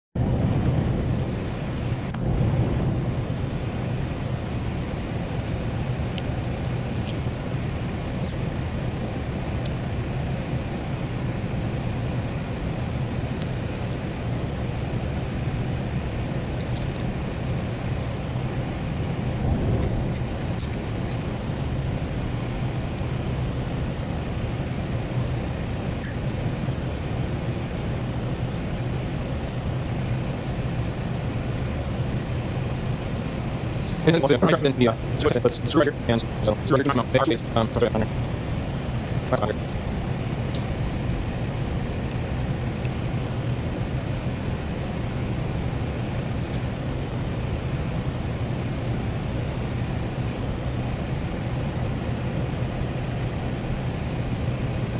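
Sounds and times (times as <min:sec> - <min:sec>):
low hum: 0:00.2 - 0:54.9
even rushing noise: 0:18.2 - 0:38.1.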